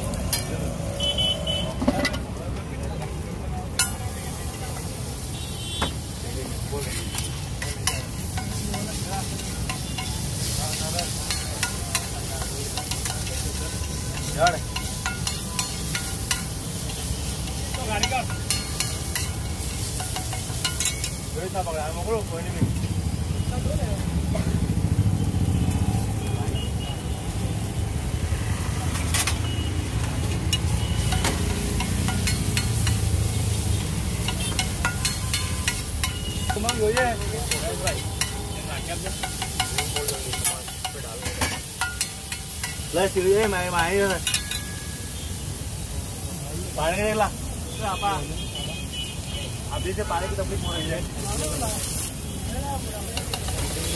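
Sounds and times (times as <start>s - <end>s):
egg sizzling on griddle: 0.0s - 49.0s, 49.8s - 53.9s.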